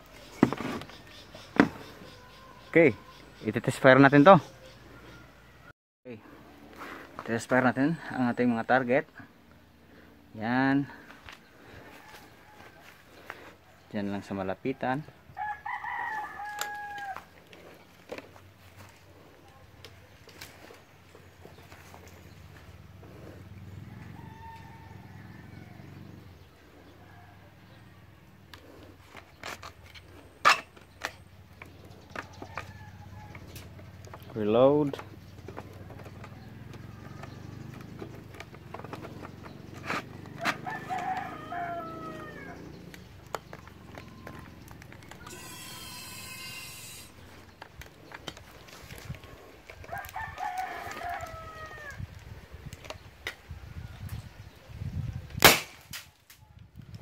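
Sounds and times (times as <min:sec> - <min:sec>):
rooster crowing: 0:04.6 - 0:05.7, 0:11.7 - 0:13.2, 0:15.4 - 0:17.4, 0:23.8 - 0:26.1, 0:40.3 - 0:42.8, 0:45.2 - 0:47.1, 0:49.8 - 0:52.0
shotgun bang: 0:55.4 - 0:55.9
gun firing sharp pop: 0:55.4 - 0:56.0.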